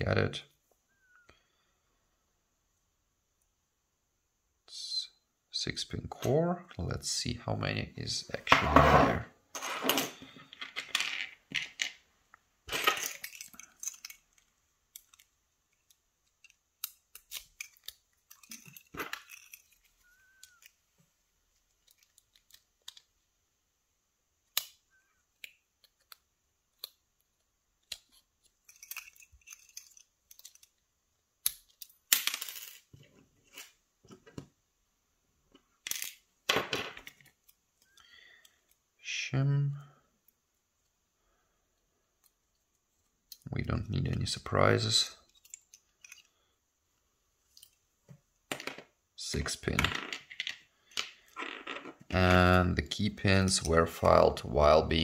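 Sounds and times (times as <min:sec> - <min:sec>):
metal parts rattling: 0:12.7 - 0:20.7, 0:28.1 - 0:30.8, 0:45.3 - 0:46.4
small metal lock parts clicking: 0:12.9 - 0:20.8, 0:21.7 - 0:23.1, 0:24.4 - 0:27.1, 0:27.8 - 0:30.8, 0:31.4 - 0:32.1, 0:45.3 - 0:46.4.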